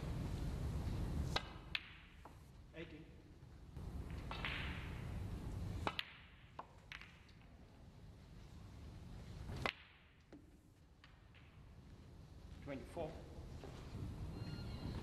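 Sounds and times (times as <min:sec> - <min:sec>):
snooker balls clicking: 0:01.2 - 0:03.0, 0:03.8 - 0:07.6, 0:09.5 - 0:11.9.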